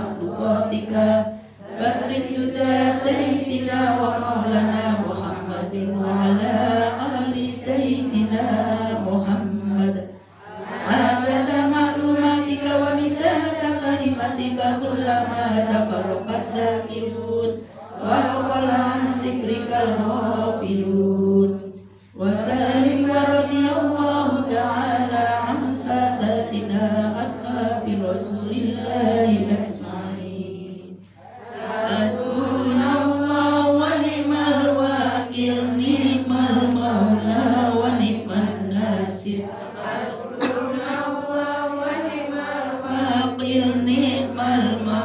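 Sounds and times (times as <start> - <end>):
women chanting prayer: 0.0 - 45.0
woman's voice over loudspeaker: 4.3 - 10.3.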